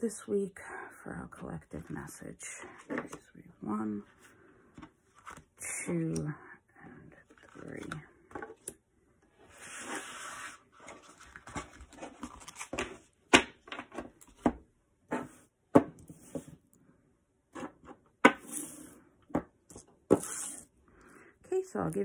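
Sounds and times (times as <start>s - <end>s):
cards sliding on tabletop: 9.4s - 11.2s, 16.1s - 16.6s, 20.1s - 20.7s.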